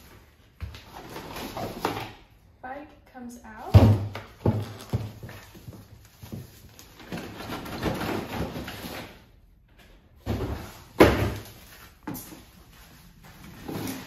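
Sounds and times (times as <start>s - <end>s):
plastic wrap and cardboard rustling: 0.0s - 2.3s, 4.3s - 9.4s, 10.2s - 14.0s.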